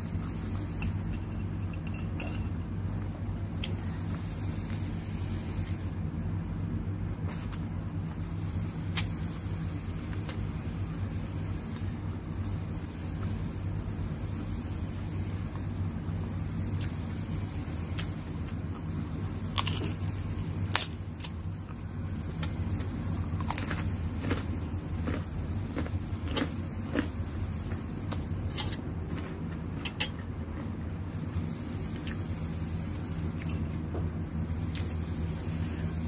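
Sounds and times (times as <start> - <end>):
steady low hum: 0.0 - 36.0
cracker crunching: 22.4 - 27.2.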